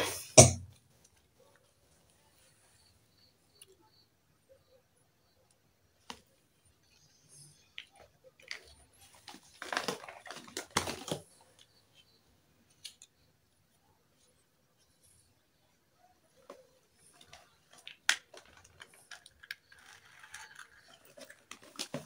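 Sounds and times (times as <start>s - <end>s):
rustling: 16.4s - 22.0s
plastic toy pieces clicking: 17.2s - 22.0s.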